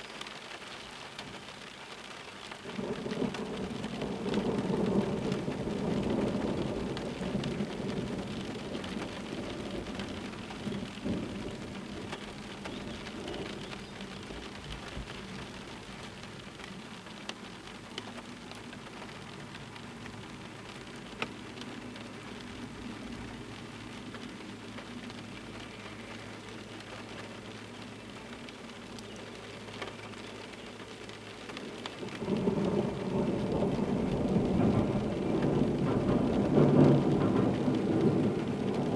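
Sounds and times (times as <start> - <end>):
steady rain: 0.0 - 38.9
rolling thunder: 2.7 - 16.8, 32.0 - 38.9
train rumbling over bridge: 33.8 - 38.9.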